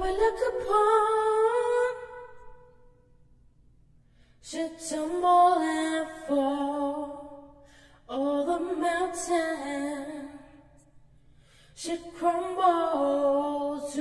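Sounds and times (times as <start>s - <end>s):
woman singing unaccompanied: 0.0s - 2.7s, 4.5s - 7.5s, 8.1s - 10.7s, 11.8s - 14.0s.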